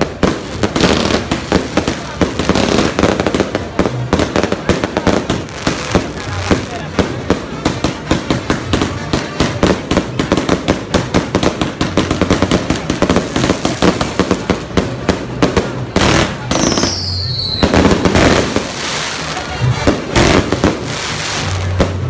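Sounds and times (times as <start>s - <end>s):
fireworks crackling pops: 0.0s - 22.0s
firework falling whistle: 16.6s - 18.0s.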